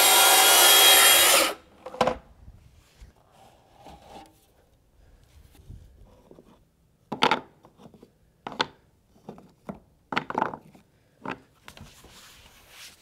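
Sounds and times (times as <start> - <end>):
plastic boards knocking and clacking: 7.1 - 7.6, 8.5 - 11.4.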